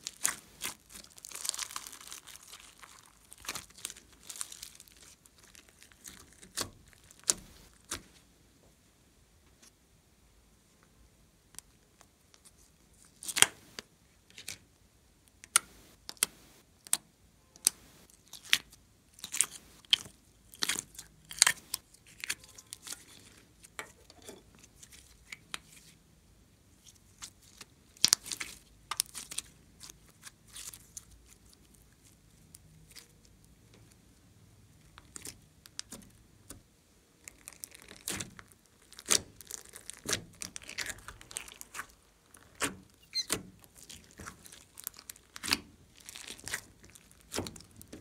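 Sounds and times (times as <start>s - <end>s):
modelling clay stretched by hand: 0.0s - 8.2s, 26.7s - 48.0s.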